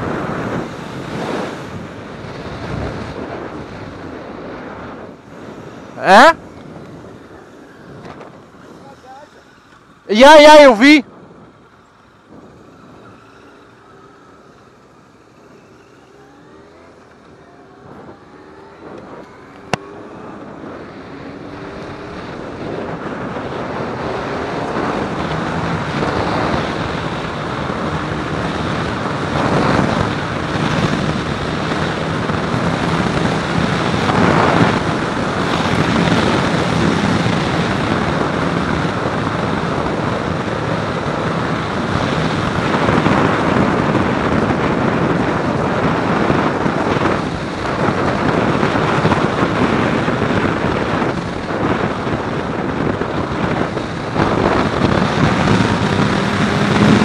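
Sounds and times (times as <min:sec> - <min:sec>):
wind rushing over microphone: 0:00.0 - 0:57.0
motorcycle engine revving: 0:12.3 - 0:57.0.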